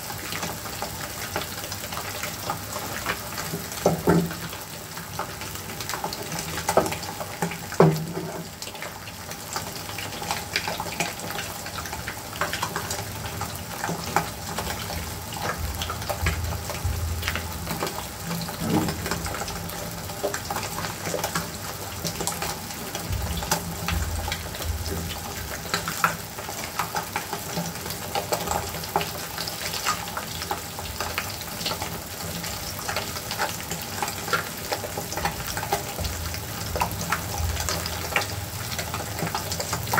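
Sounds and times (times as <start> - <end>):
eggs sizzling in a frying pan: 0.0 - 39.9.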